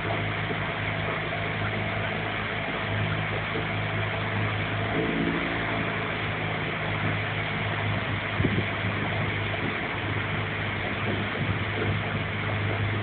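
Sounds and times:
motorboat engine humming: 0.0s - 13.0s
water rushing: 0.0s - 13.0s.

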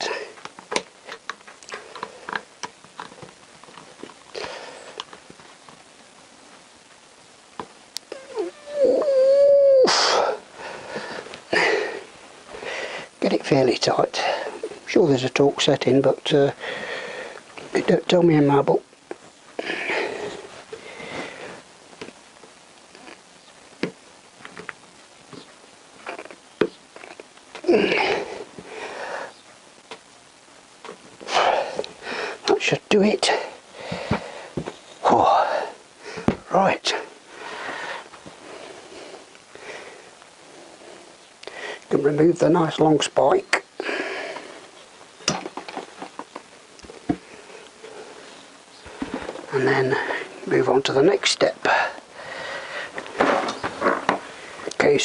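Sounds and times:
loud breaths: 9.9s - 13.2s, 16.6s - 17.5s, 19.6s - 21.7s, 27.7s - 29.4s, 31.2s - 32.4s, 33.3s - 36.4s, 37.1s - 41.9s, 43.8s - 44.8s, 51.7s - 53.4s.

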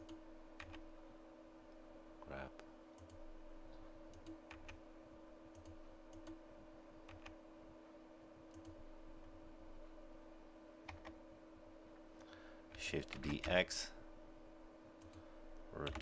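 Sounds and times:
low electrical hum: 0.0s - 16.0s.

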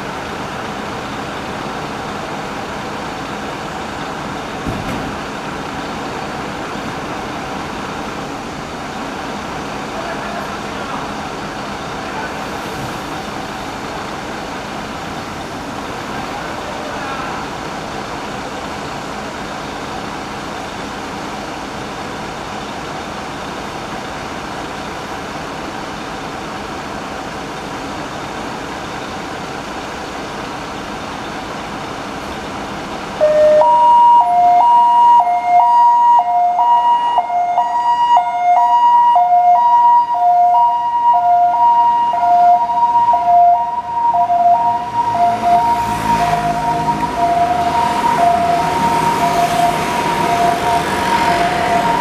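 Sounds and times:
street noise: 0.0s - 52.0s
ambulance hi-lo siren: 33.2s - 52.0s
vehicle engine: 40.3s - 52.0s.

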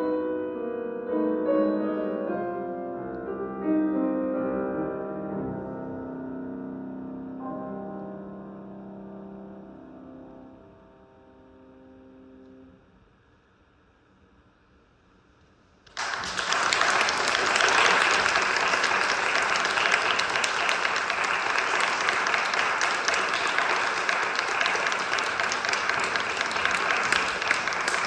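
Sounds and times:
audience applause: 15.9s - 28.0s.

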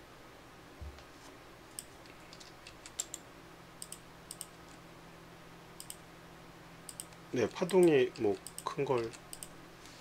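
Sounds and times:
mouse and keyboard clicks: 1.7s - 3.2s, 3.8s - 4.6s, 6.9s - 9.5s.

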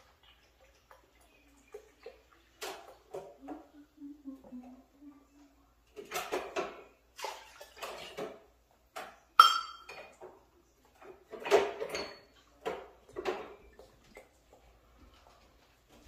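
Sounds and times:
sharp ringing metal clink: 9.4s - 9.9s
measuring cup clinking against pot: 9.4s - 10.1s.

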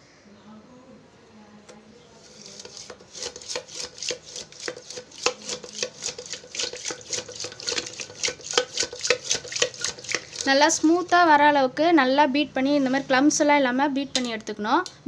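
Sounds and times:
wet stirring: 2.1s - 11.4s
whisk clinking against steel pot: 2.2s - 11.2s.

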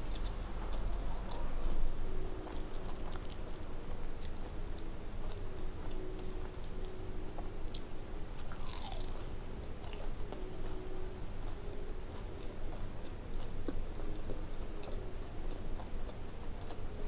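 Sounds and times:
chewing: 0.0s - 17.0s
crunchy biting of fried food: 8.4s - 9.2s.

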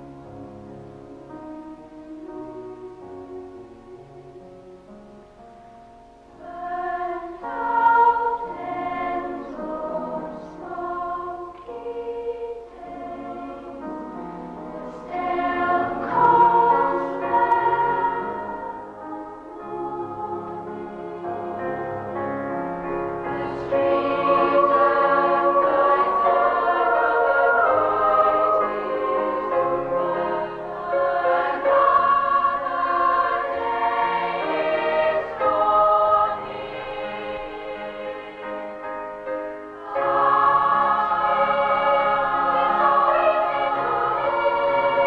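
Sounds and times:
youth choir singing: 6.4s - 22.2s, 23.2s - 38.8s, 39.7s - 45.0s.

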